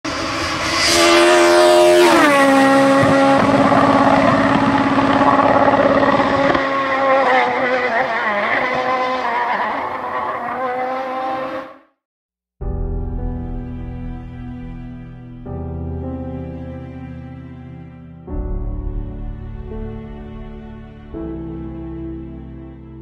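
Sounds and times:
car engine note: 0.1 - 11.8.

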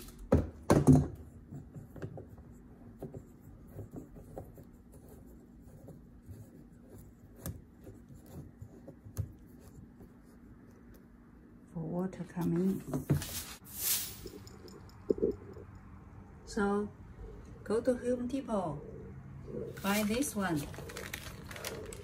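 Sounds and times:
plastic film rustling and scraping: 13.2 - 14.4, 19.8 - 22.0.

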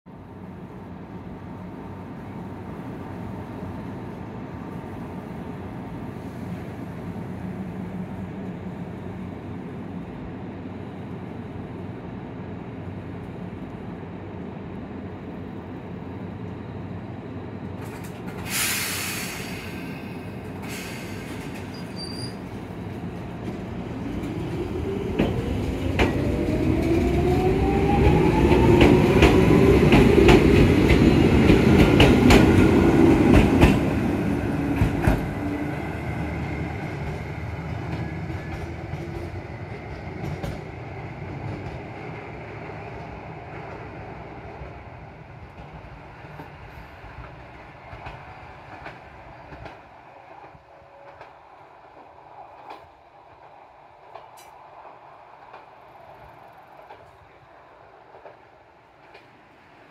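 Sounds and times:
short hisses: 18.5 - 22.0.

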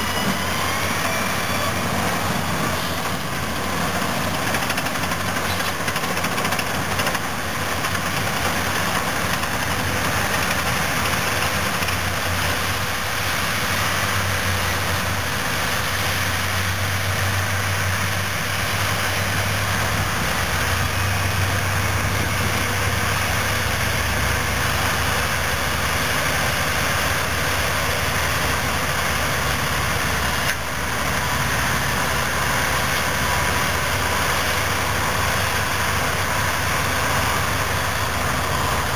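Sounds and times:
heavy diesel engines droning: 0.0 - 38.9.

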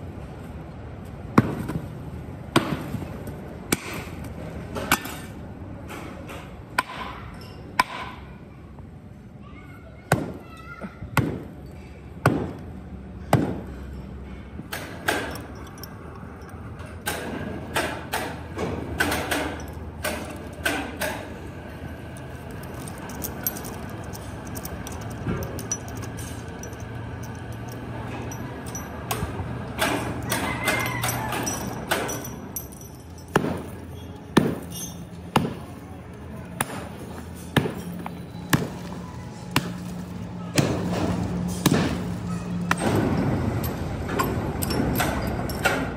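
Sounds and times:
low machine hum: 11.6 - 45.9
heavy hammering blows: 22.8 - 35.7.

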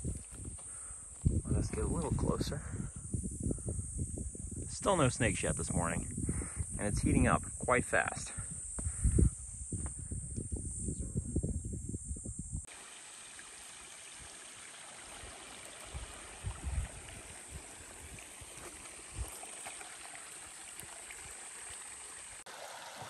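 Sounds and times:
wind buffeting microphone: 0.0 - 12.7, 15.2 - 19.4
creek running over rocks: 12.7 - 23.0.

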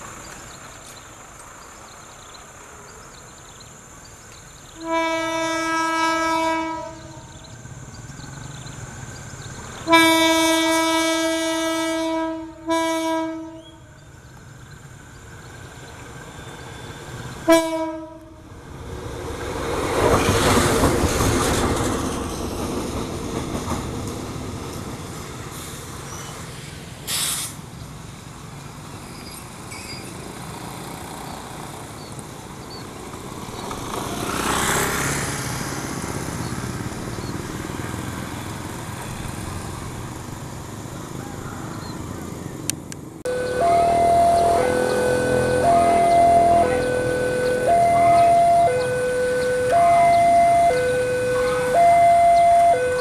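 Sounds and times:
locomotive engine and wheels passing: 0.0 - 53.0
locomotive horn blasts: 4.8 - 7.3, 9.9 - 13.9, 17.5 - 18.4, 43.3 - 53.0
short hiss: 25.5 - 27.7.

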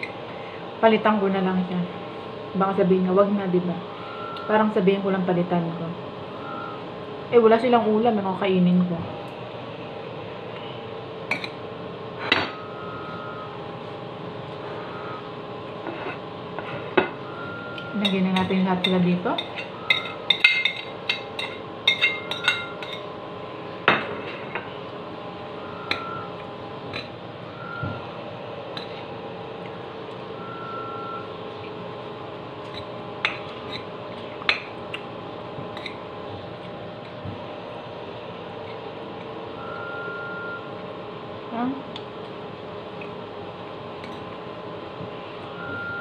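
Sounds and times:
steady background hum: 0.0 - 46.0
cutlery clinking on a dish: 18.0 - 23.0.

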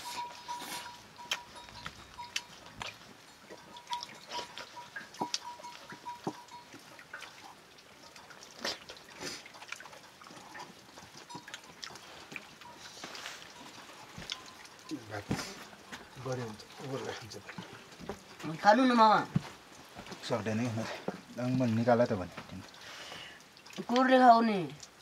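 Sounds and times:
chewing mouth sounds: 8.2 - 15.6.

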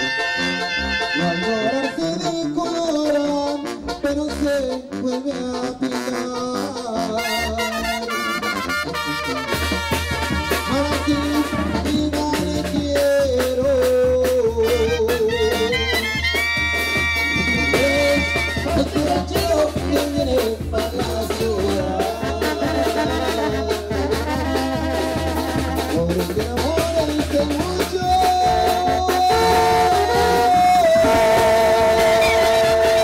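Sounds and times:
brass band playing: 0.0 - 33.0
percussion: 8.6 - 33.0
low bass line: 17.4 - 33.0.

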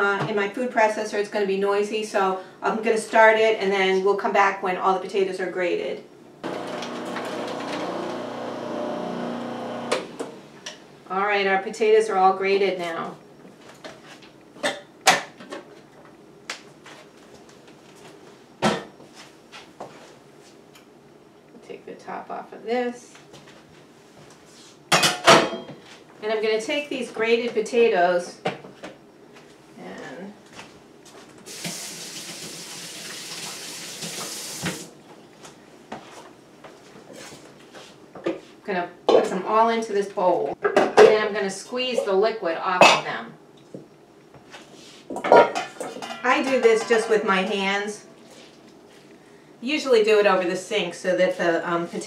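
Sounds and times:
kitchen tap running into sink: 31.5 - 34.9.

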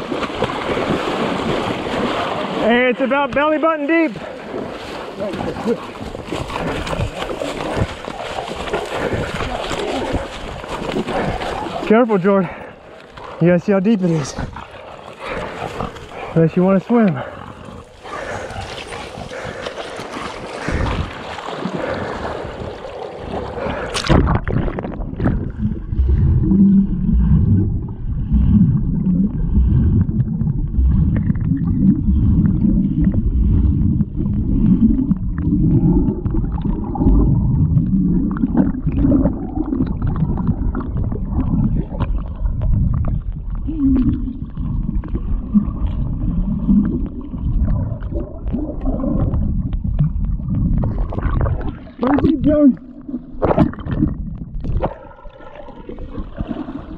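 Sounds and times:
muffled underwater sloshing: 0.0 - 56.9
wading with splashing: 0.0 - 56.9
underwater knocks: 24.0 - 46.0.

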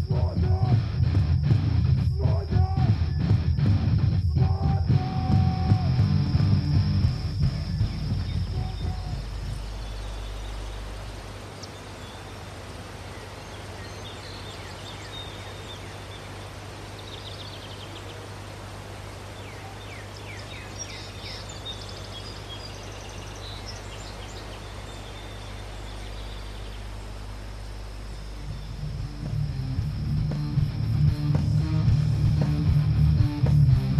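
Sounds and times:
rock music: 0.0 - 9.5, 28.8 - 33.9
low steady hum: 0.0 - 33.9
bird chirps: 6.2 - 18.2, 19.3 - 27.3.

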